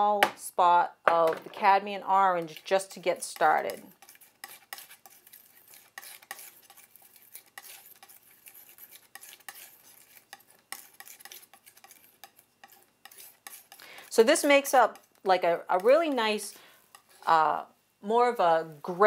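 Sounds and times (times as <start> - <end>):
paint scraping and tapping strokes: 2.3 - 17.4.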